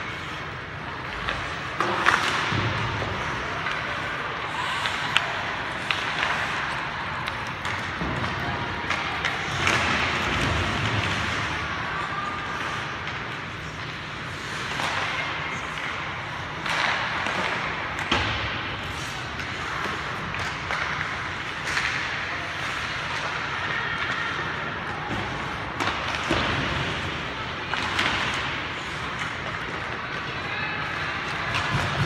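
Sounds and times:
hockey sticks and puck clacking: 0:00.0 - 0:32.0.

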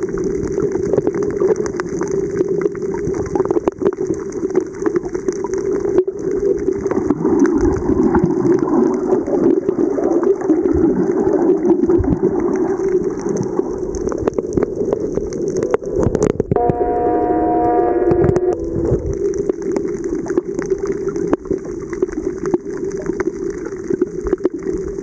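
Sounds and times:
underwater clicks and crackles: 0:00.0 - 0:16.8, 0:18.1 - 0:25.0
underwater rushing water: 0:00.0 - 0:25.0
steady multi-tone hum: 0:16.6 - 0:19.0.

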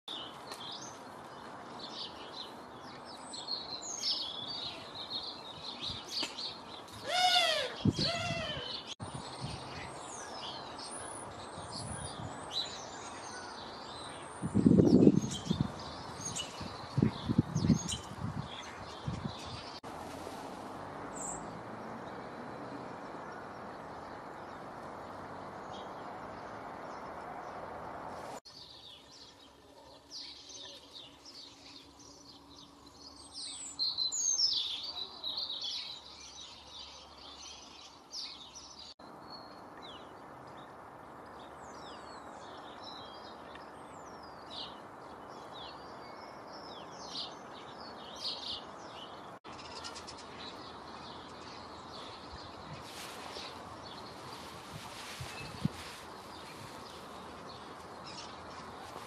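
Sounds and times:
birds chirping and singing: 0:01.9 - 0:19.8.

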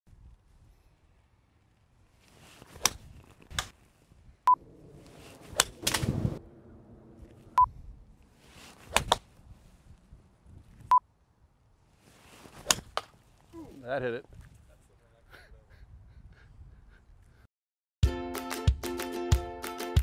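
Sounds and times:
rough rush of noise: 0:04.5 - 0:09.8
golf club striking ball: 0:04.6 - 0:07.6, 0:08.9 - 0:09.3.

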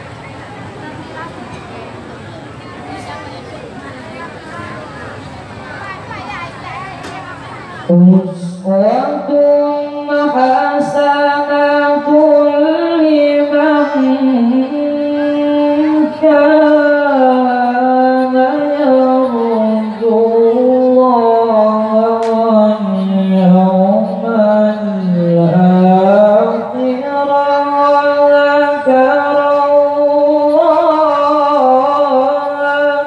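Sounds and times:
man chanting into a microphone: 0:07.9 - 0:33.0.

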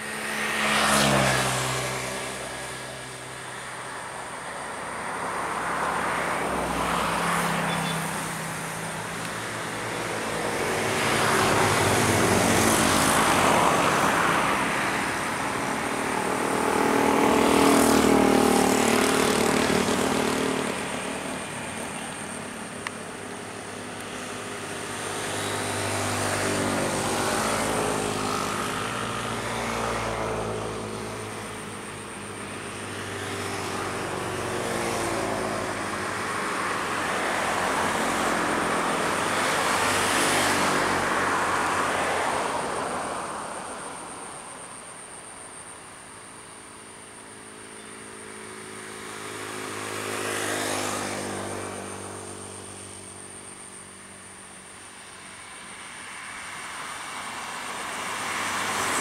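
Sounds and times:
motor engines droning past: 0:00.0 - 0:59.0.

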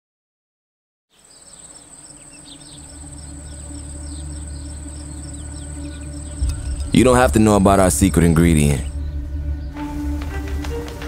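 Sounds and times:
crickets chirping: 0:01.1 - 0:11.0
insect drone: 0:01.1 - 0:11.0
low hum: 0:02.0 - 0:11.0.

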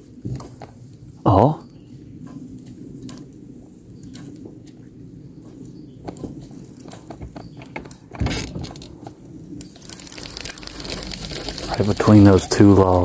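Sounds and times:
low steady rumble: 0:09.3 - 0:13.0
loud rustling: 0:09.8 - 0:13.0.

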